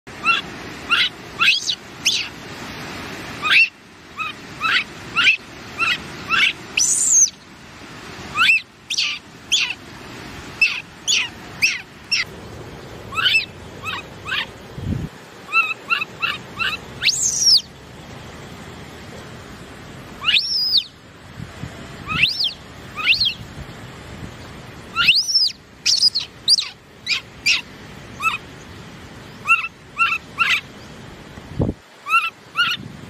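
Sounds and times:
baby monkey chirping: 0.2s - 2.3s, 3.4s - 7.4s, 8.3s - 9.8s, 10.6s - 12.3s, 13.1s - 14.5s, 15.5s - 17.7s, 20.2s - 20.9s, 22.1s - 23.4s, 25.0s - 28.4s, 29.4s - 30.6s, 32.0s - 32.8s
baby monkey squealing: 0.2s - 2.3s, 3.4s - 7.3s, 8.3s - 9.8s, 10.6s - 12.3s, 13.1s - 14.5s, 15.5s - 17.7s, 20.2s - 20.9s, 22.0s - 23.4s, 25.0s - 28.4s, 29.4s - 30.6s, 32.0s - 32.8s.

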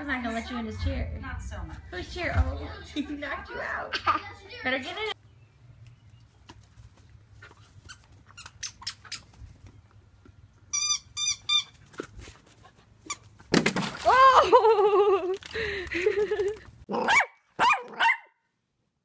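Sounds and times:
rubber ball squeaking: 10.7s - 11.8s.

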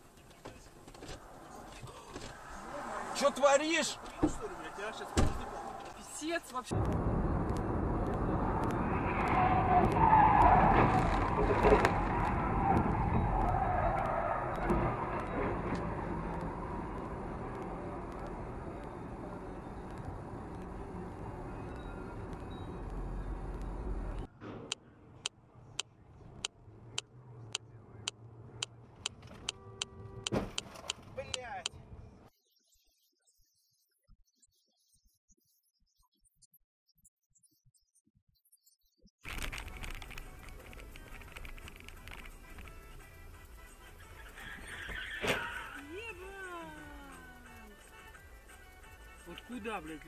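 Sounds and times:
road rumble: 0.0s - 32.3s, 39.2s - 50.0s
car tyres screeching: 0.5s - 25.0s, 39.4s - 46.1s
low engine hum: 6.7s - 24.3s
turn signal ticking: 12.8s - 24.3s
brief tone: 21.4s - 23.9s
sharp thump: 30.3s - 30.6s.

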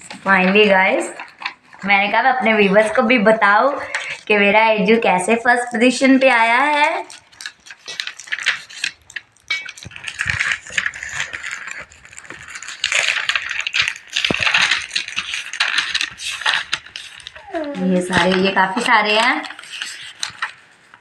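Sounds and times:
paper pages rustling in binder: 0.0s - 21.0s.

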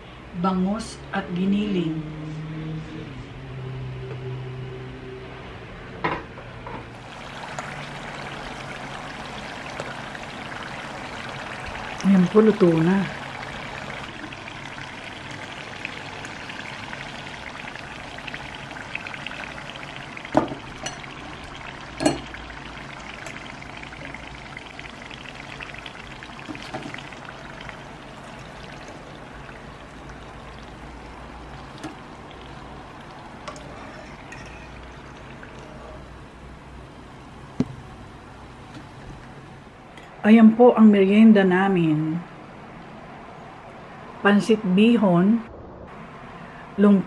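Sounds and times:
spring rolls sizzling in oil: 6.9s - 36.1s.

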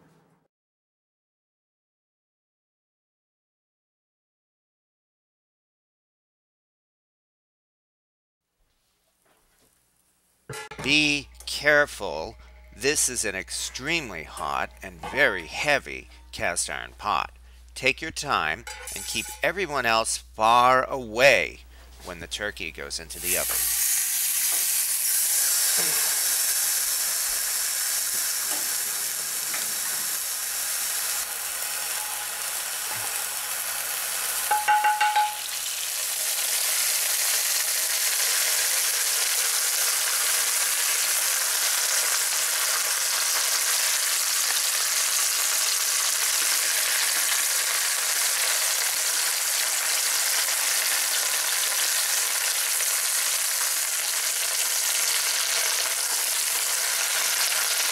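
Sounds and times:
turkey sizzling in a pot: 18.6s - 19.6s, 23.1s - 57.9s
metal clink: 34.5s - 35.5s.

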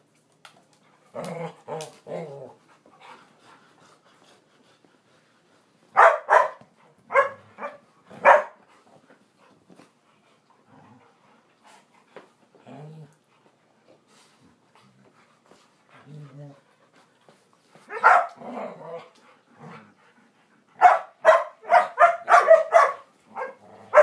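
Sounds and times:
dogs barking: 6.0s - 8.6s, 17.9s - 18.4s, 20.8s - 24.0s.

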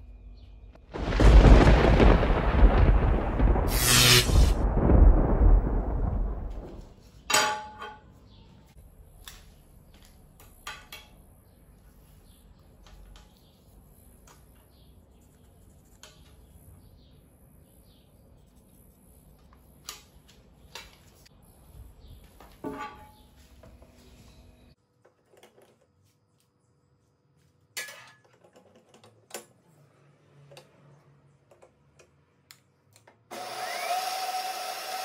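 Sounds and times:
deep boom: 1.0s - 6.9s.

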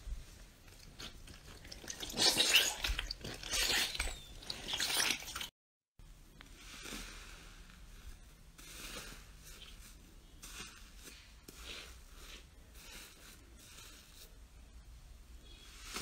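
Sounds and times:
slime squishing: 0.6s - 5.5s.

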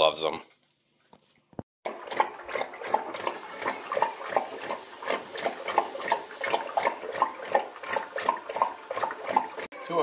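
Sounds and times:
dog lapping water from metal bowl: 1.8s - 9.7s.

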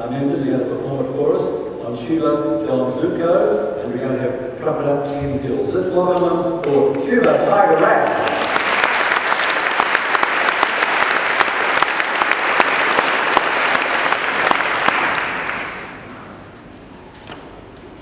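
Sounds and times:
audience applauding: 7.5s - 16.2s.

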